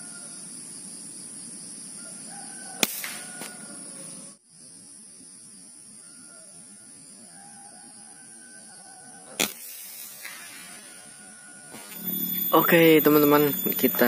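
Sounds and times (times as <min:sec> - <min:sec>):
air rifle shot: 0:02.8 - 0:03.3, 0:09.4 - 0:10.6
high insect buzz: 0:09.2 - 0:14.0.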